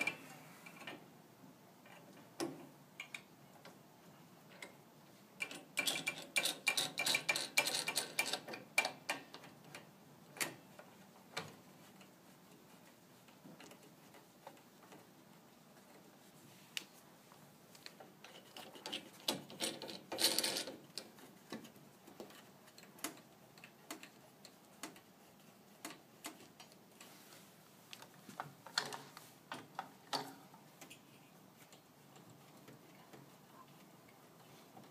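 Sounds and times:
metal gate clicks and rattles: 5.4s - 9.4s.

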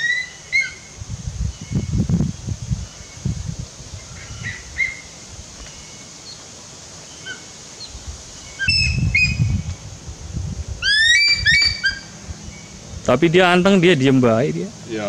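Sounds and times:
birds chirping: 0.0s - 15.0s
low rumbling noise: 8.0s - 15.0s.

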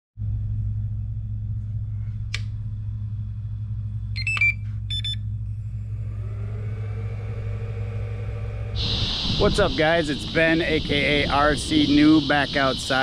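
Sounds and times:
short electronic beeps: 4.2s - 5.2s.

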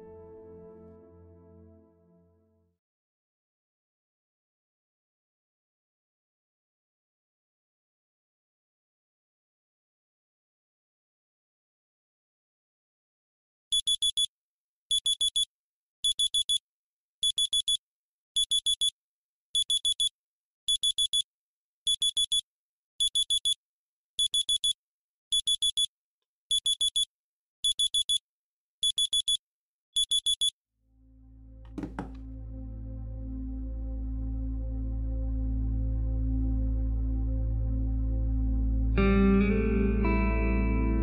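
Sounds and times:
phone alarm beeping: 13.8s - 14.3s, 26.5s - 27.1s, 28.8s - 29.4s, 30.0s - 30.5s.

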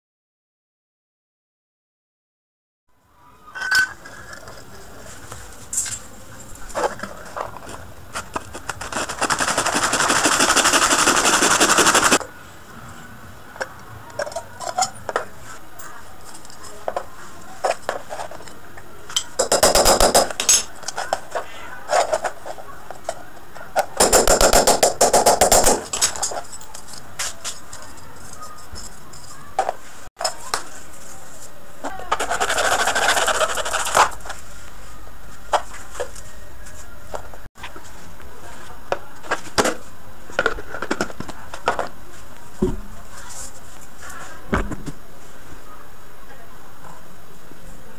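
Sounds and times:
plastic parts clicking and knocking: 19.2s - 21.3s.

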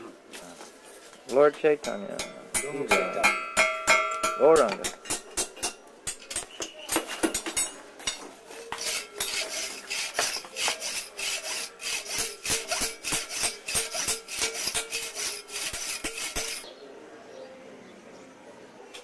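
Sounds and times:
hacksaw cutting metal rod: 8.8s - 16.7s.

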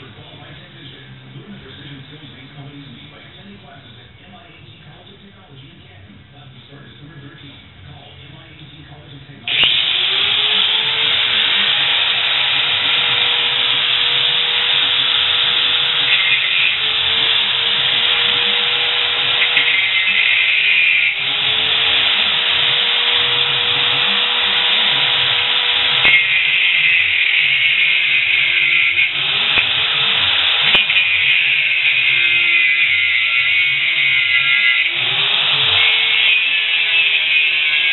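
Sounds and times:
angle grinder cutting metal: 9.5s - 37.9s.

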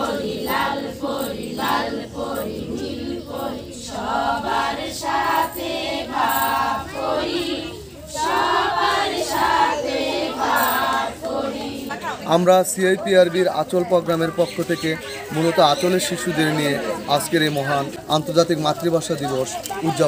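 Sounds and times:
women singing in unison: 0.0s - 12.2s.

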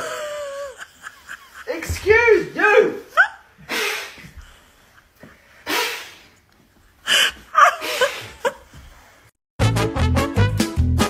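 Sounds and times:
man blowing puffs of air: 3.6s - 6.5s.

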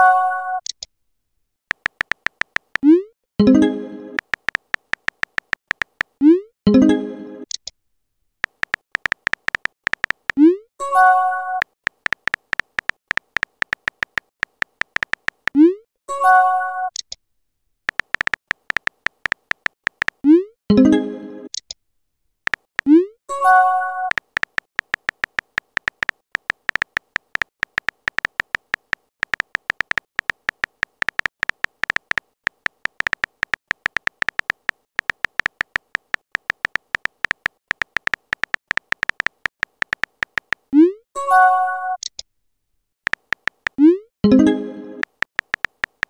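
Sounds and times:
synthetic phone key clicks: 1.7s - 2.9s, 4.2s - 6.2s, 8.4s - 10.4s, 11.6s - 15.6s, 17.9s - 20.2s, 24.1s - 40.7s, 43.1s - 43.8s, 45.0s - 46.0s.

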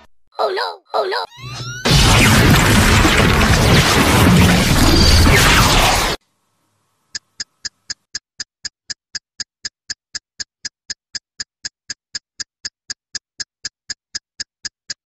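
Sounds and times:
clock-like ticking: 7.1s - 15.0s.

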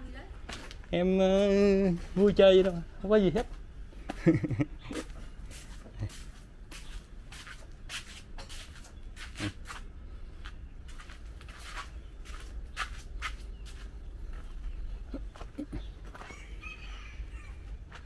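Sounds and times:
footsteps scuffing on gritty tile: 4.9s - 14.6s.

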